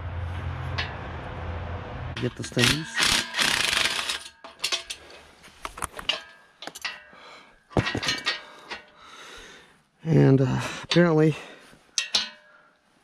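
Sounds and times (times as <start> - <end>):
metallic clinks and clanks: 2.2 - 9.0, 10.8 - 12.7.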